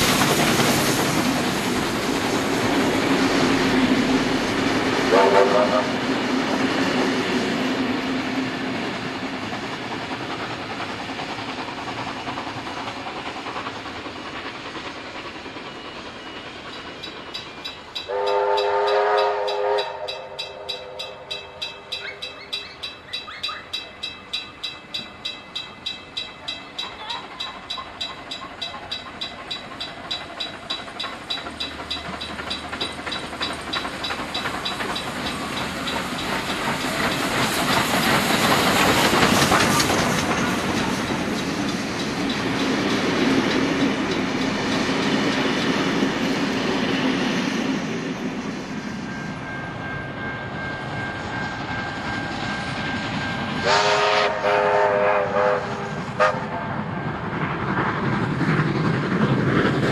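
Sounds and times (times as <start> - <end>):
steam train passing: 0.0 - 59.9
train horn chord: 5.1 - 6.0, 18.1 - 21.2, 53.6 - 56.6.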